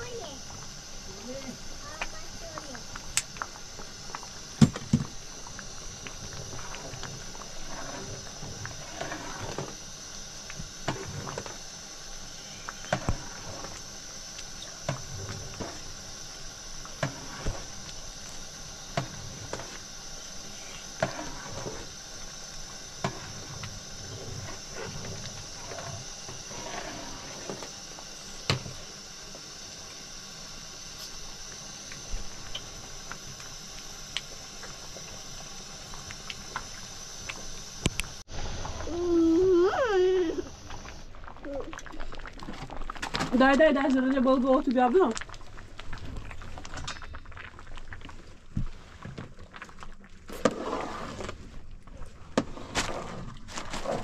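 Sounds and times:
rain hiss: 0:00.0 - 0:42.2.

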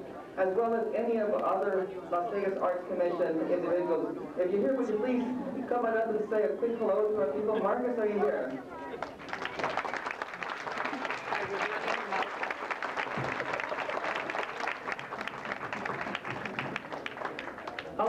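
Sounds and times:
audience applauding: 0:08.9 - 0:18.0.

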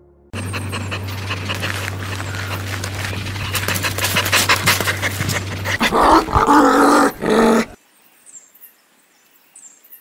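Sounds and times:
dog panting: 0:00.4 - 0:07.7
dog growling: 0:00.4 - 0:07.8.

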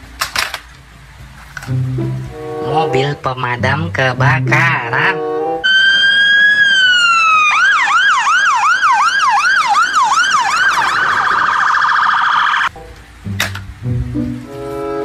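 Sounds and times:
fire engine siren: 0:05.1 - 0:12.7.

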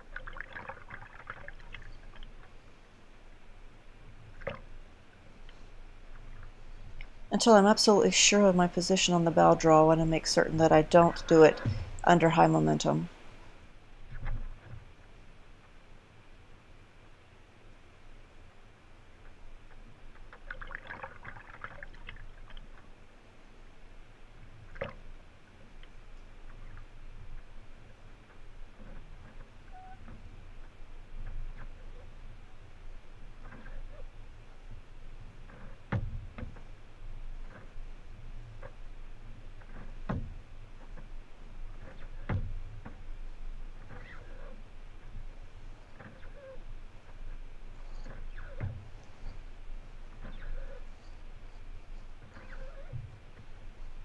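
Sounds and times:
water dripping: 0:00.0 - 0:02.4
paddle splashing in water: 0:00.0 - 0:02.6, 0:19.7 - 0:22.9.

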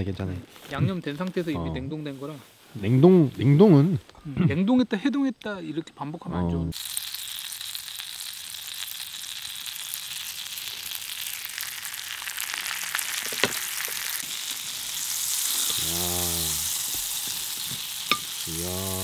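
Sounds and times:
butter sizzling in skillet: 0:06.7 - 0:19.0.

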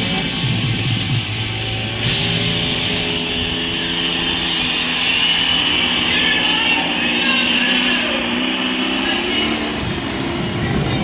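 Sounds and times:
low rumble: 0:00.0 - 0:07.9
model airplane engine droning: 0:00.0 - 0:11.0.

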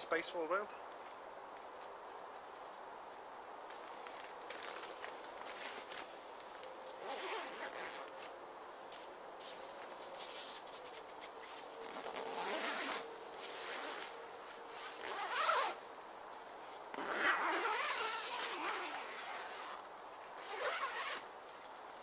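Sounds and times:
tent zip being pulled: 0:07.0 - 0:08.1, 0:11.8 - 0:15.8, 0:16.9 - 0:19.8, 0:20.4 - 0:21.3.

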